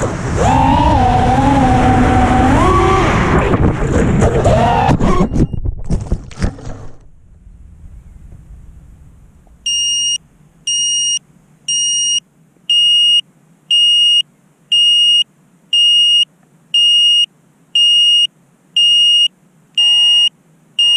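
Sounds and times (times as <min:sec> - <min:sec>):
high-pitched beeper beeping: 0:09.6 - 0:12.2.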